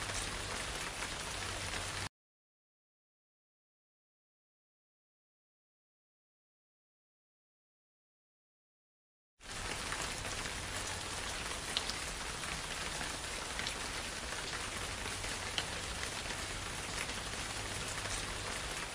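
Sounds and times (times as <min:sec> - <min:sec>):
rain-like hiss: 0:00.0 - 0:02.1, 0:09.4 - 0:18.9.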